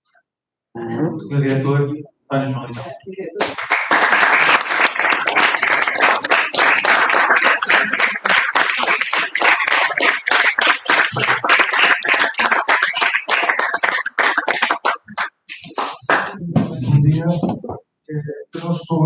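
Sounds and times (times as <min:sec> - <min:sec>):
audience applauding: 0:03.4 - 0:16.4.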